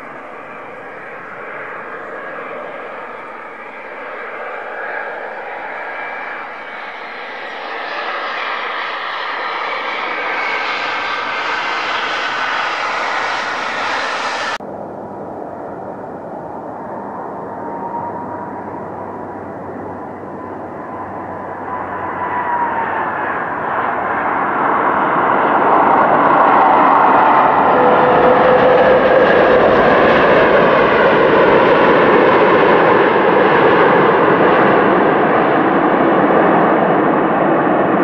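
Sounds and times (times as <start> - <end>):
jet engine whine: 0.0 - 38.0
landing jet engine noise: 0.0 - 38.0.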